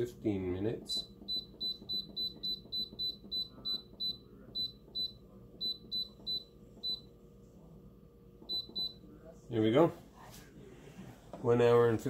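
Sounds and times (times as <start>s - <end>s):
pressure cooker beeping: 0.9s - 7.1s, 8.4s - 9.0s.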